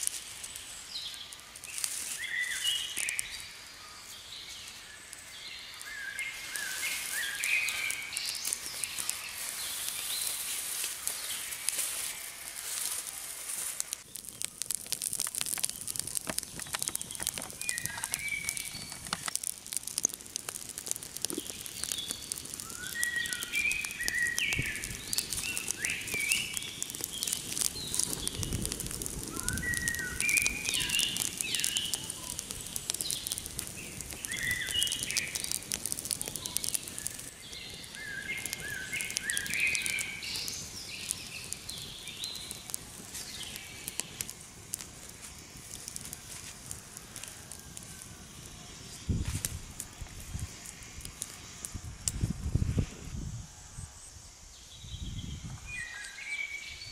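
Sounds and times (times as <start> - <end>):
fire crackling and popping: 0.0 - 56.9
birds chirping: 0.4 - 13.2, 14.0 - 46.3.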